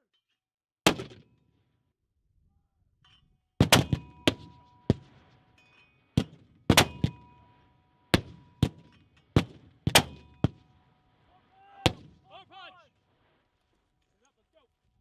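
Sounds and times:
mortars firing: 3.6s - 5.2s, 6.2s - 7.4s, 8.1s - 10.6s
metallic ringing: 4.1s - 6.2s.

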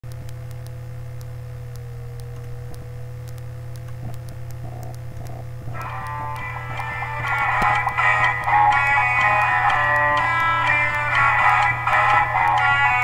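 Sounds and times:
electrical hum: 0.0s - 13.0s
faint ticks: 0.1s - 13.0s
rock song on electric guitar: 5.8s - 13.0s.

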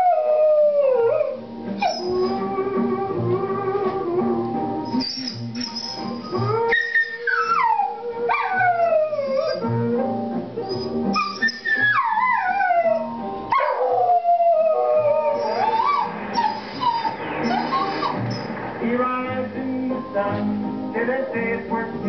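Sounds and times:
dog howling: 0.0s - 9.9s, 10.6s - 18.6s
country song on a record: 0.0s - 22.0s.

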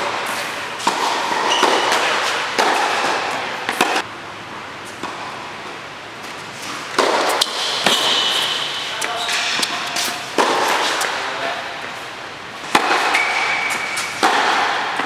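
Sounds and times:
tennis ball impacts and bounces: 0.0s - 4.1s, 6.2s - 11.2s, 12.6s - 15.0s.

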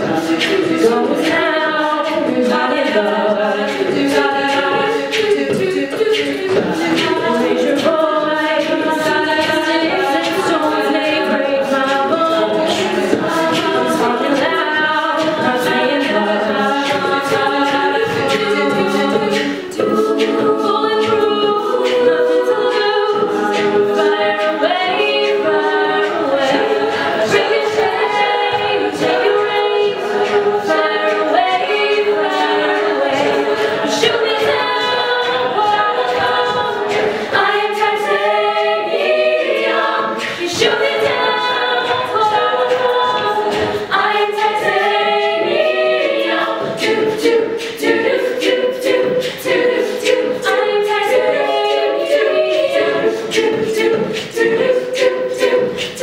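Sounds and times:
female group singing in harmony: 0.0s - 56.0s
vocal percussion beat: 0.0s - 56.0s.

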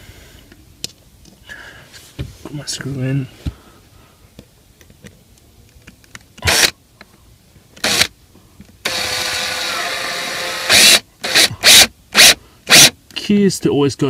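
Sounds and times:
cordless drill driving screw: 6.4s - 6.7s, 7.8s - 8.1s, 8.8s - 12.9s.

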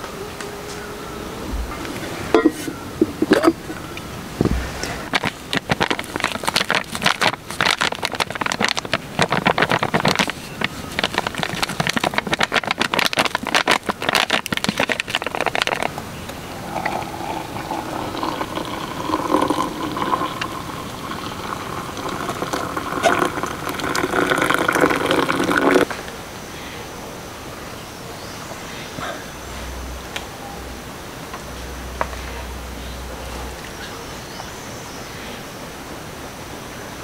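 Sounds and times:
sachet crinkling and rattling: 4.9s - 16.0s
tea pouring into a mug: 16.5s - 25.9s.

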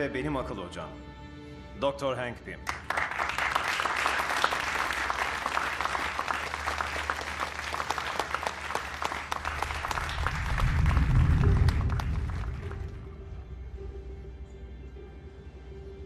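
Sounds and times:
people applauding: 2.6s - 13.1s
deep low rumble: 9.3s - 13.8s.

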